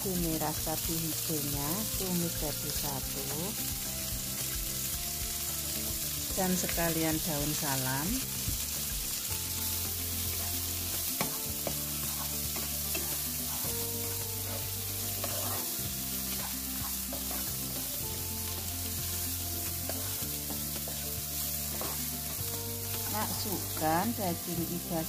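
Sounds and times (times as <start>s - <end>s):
food sizzling in a wok: 0.0s - 25.0s
spatula scraping and knocking pan: 10.2s - 23.9s.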